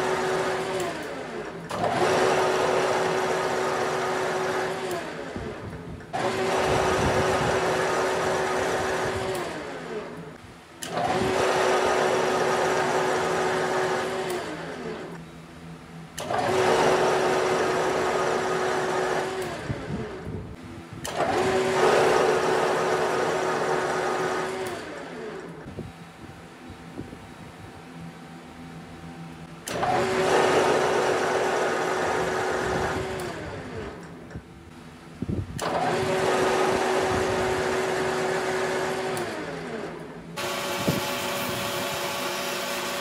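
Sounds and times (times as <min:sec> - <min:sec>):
metal lathe spindle running: 0:00.0 - 0:15.3, 0:16.1 - 0:20.2, 0:35.6 - 0:43.0
lathe coasting down: 0:35.6 - 0:43.0.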